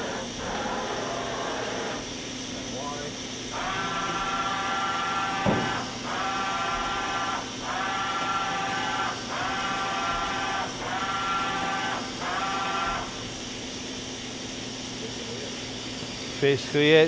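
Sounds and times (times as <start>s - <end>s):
machine axis drives whining: 0.0s - 13.9s
thump: 5.4s - 5.8s.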